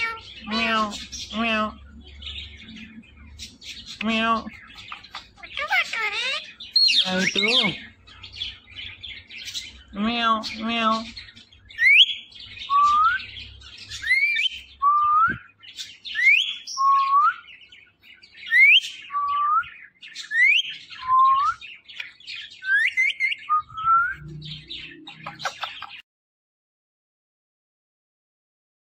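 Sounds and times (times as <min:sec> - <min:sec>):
parrot imitating cat meow: 0:00.0 - 0:01.8, 0:05.4 - 0:06.5
parrot scratchy chatter: 0:00.0 - 0:01.8, 0:03.5 - 0:07.8, 0:25.1 - 0:26.0.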